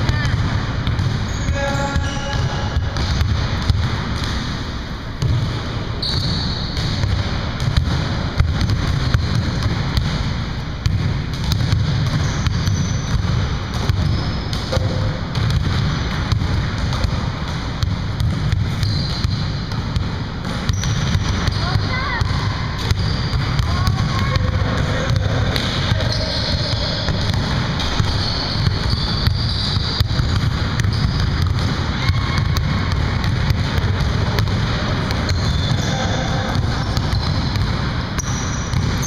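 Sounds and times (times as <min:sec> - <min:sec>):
basketballs bouncing on wooden floor: 0:00.0 - 0:39.0
sneaker squeaks: 0:01.2 - 0:03.2, 0:06.0 - 0:07.1, 0:11.5 - 0:15.2, 0:18.6 - 0:19.8, 0:20.6 - 0:33.3, 0:34.4 - 0:39.0.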